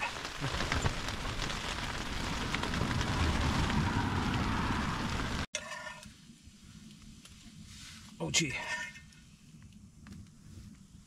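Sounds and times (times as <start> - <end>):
heavy rain on tent fabric: 0.0 - 5.5.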